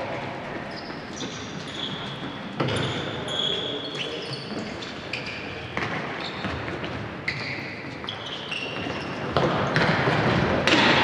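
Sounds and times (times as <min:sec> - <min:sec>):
sneakers squeaking: 0:00.0 - 0:11.0.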